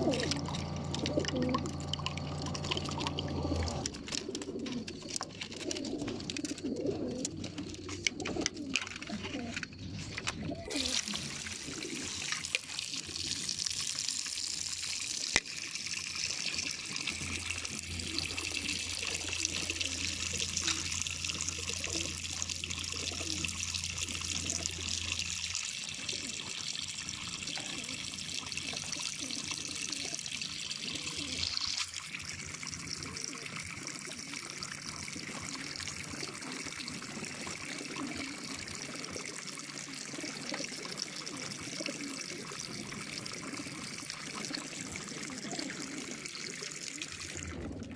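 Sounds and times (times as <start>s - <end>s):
low steady hum: 0.0s - 5.0s
water trickling down trough: 0.0s - 47.9s.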